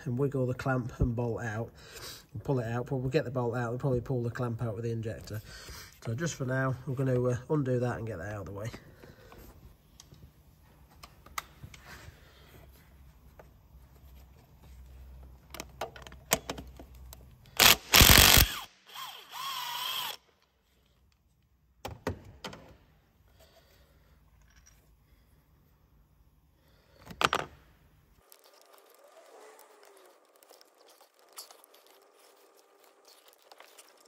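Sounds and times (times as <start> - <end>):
impact driver bursts: 17.6 - 20.2.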